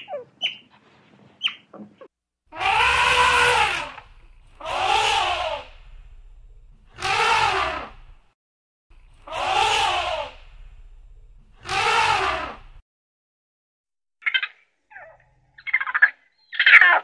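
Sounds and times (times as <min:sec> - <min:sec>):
animal harsh drawn-out calls: 0:02.5 - 0:06.1, 0:06.9 - 0:08.2, 0:09.1 - 0:10.7, 0:11.6 - 0:12.8.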